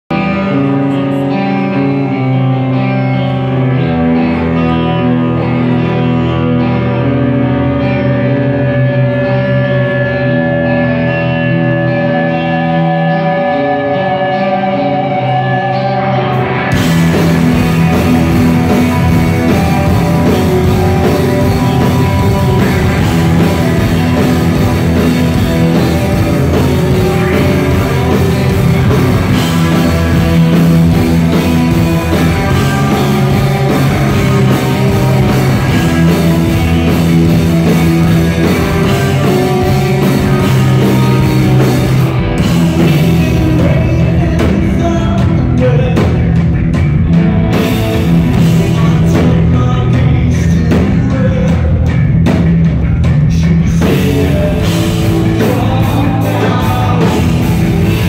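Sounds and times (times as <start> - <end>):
ringing electric guitar notes: 0.1 - 49.8
live rock band: 0.1 - 58.0
drums and cymbals: 16.6 - 58.0.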